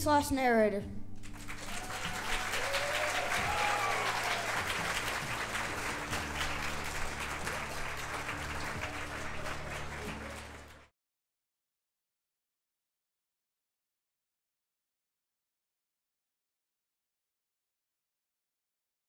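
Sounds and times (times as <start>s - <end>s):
quiet music: 0.0s - 10.9s
audience applauding: 1.2s - 10.9s.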